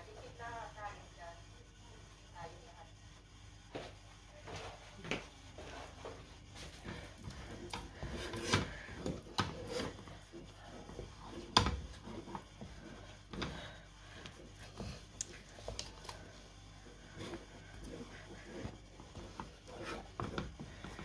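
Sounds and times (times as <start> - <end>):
wooden spatula scraping pan: 5.6 - 21.0.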